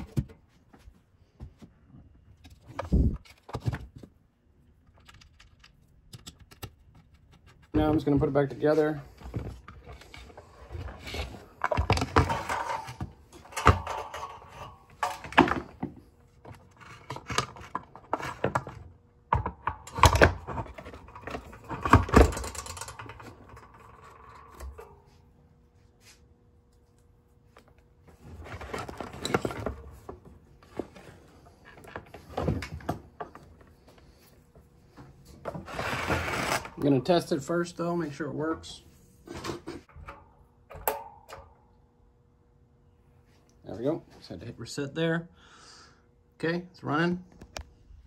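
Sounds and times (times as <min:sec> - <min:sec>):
plastic parts clunking and scraping: 0:00.0 - 0:04.2, 0:04.8 - 0:25.2, 0:27.5 - 0:34.2, 0:34.9 - 0:36.9, 0:38.6 - 0:41.5.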